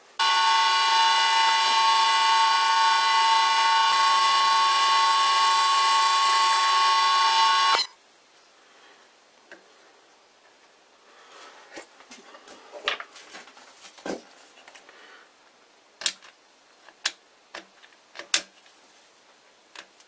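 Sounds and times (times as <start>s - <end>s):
metal lathe whining: 0.2s - 7.9s.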